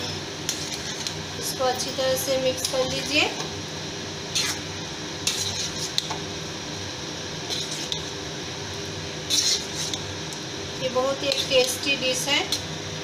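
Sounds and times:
spatula stirring thick curry: 0:00.4 - 0:01.2, 0:05.2 - 0:06.2, 0:09.3 - 0:10.1
spatula scraping metal pan: 0:00.5 - 0:01.1, 0:05.2 - 0:06.0, 0:09.3 - 0:10.0.

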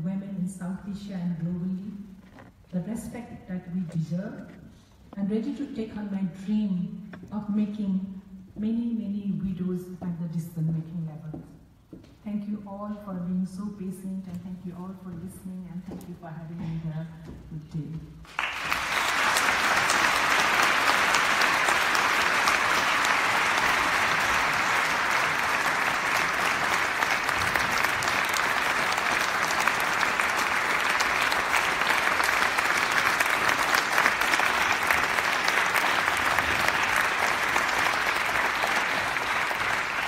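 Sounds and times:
audience applauding: 0:18.3 - 0:40.0.

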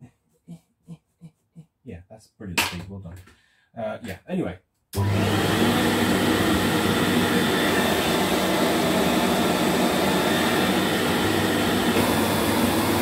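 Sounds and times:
upright vacuum cleaner running: 0:05.0 - 0:13.0.

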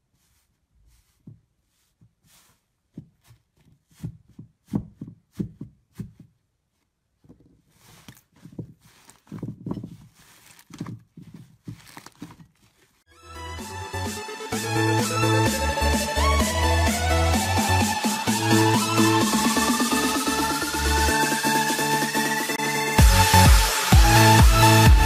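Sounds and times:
slime stretching and tearing: 0:11.6 - 0:12.8
electronic music: 0:13.1 - 0:25.0.

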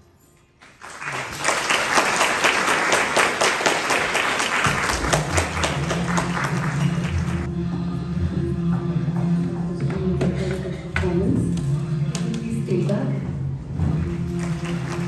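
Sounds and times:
audience applause: 0:00.6 - 0:07.5, 0:14.0 - 0:15.0
performance music: 0:00.6 - 0:15.0
low steady music: 0:04.2 - 0:15.0.

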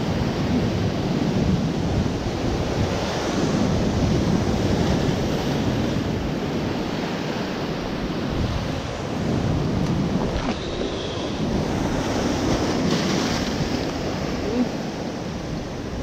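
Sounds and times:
wind buffeting microphone: 0:00.0 - 0:16.0
surf breaking on rocky shore: 0:03.6 - 0:16.0.

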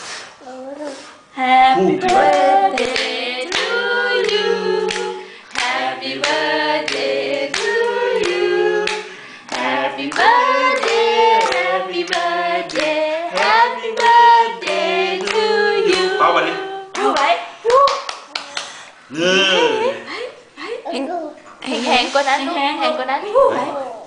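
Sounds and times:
group singing: 0:01.4 - 0:17.0
hands clapping along: 0:02.0 - 0:16.2, 0:17.0 - 0:18.8.

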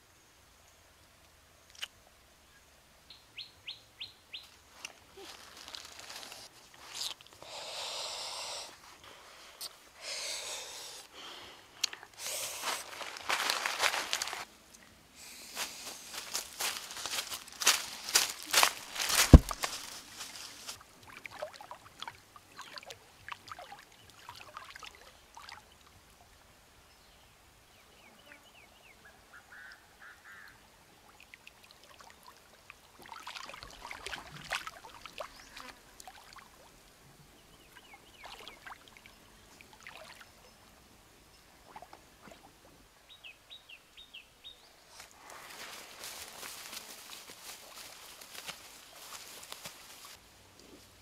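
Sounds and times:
rustling in dry leaves: 0:04.7 - 0:07.2, 0:12.2 - 0:14.5, 0:15.2 - 0:20.8, 0:44.9 - 0:50.2
fish thrashing in water: 0:18.8 - 0:19.7.

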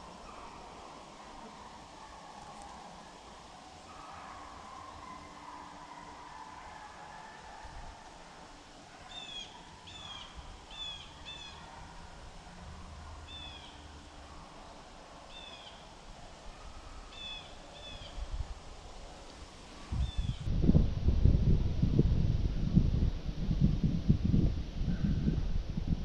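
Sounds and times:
bird calling: 0:00.0 - 0:07.5, 0:09.0 - 0:12.2, 0:13.2 - 0:18.3
faint background noise: 0:00.0 - 0:26.0.

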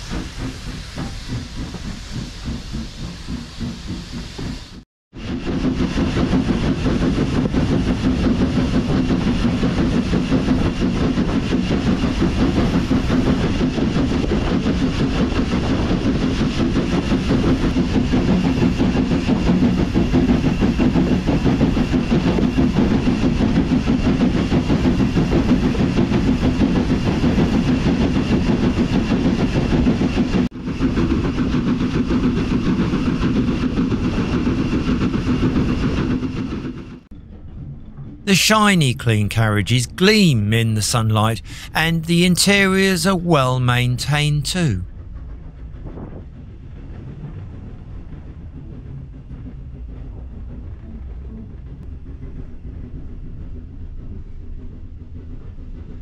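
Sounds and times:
steam locomotive rumbling: 0:00.0 - 0:36.6.

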